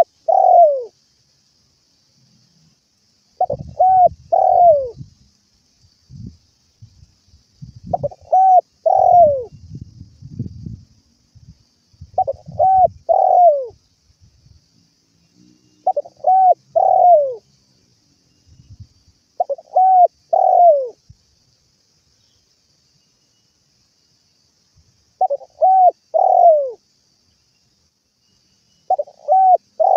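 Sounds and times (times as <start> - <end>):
dove cooing: 0.0 - 0.9, 3.4 - 5.0, 7.9 - 9.5, 12.2 - 13.8, 15.8 - 17.4, 19.4 - 21.0, 25.2 - 26.8, 28.9 - 29.9.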